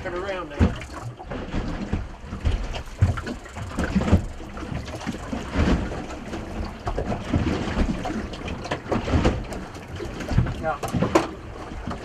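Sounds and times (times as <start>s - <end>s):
water lapping against boat hull: 0.0s - 12.0s
dull knocks: 0.5s - 8.0s.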